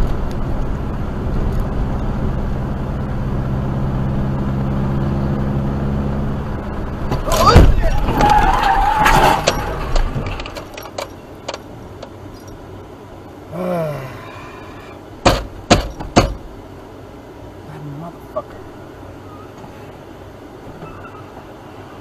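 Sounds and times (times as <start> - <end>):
car scraping and sliding: 7.0 - 11.1
sharp knocks: 15.2 - 16.4.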